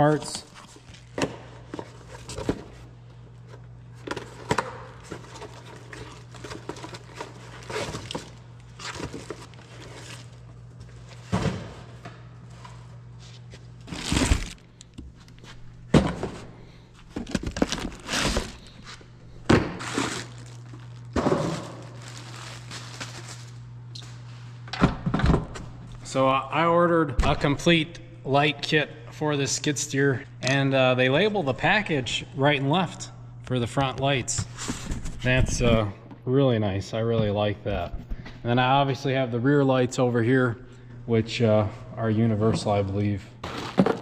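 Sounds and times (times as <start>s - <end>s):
steady low hum: 0.0s - 44.0s
packaging rustling: 4.0s - 10.5s, 13.8s - 15.6s, 17.0s - 19.1s, 19.8s - 23.7s
boxes set down with thunks: 11.2s - 11.9s, 15.9s - 16.5s, 21.1s - 21.9s, 43.4s - 44.0s.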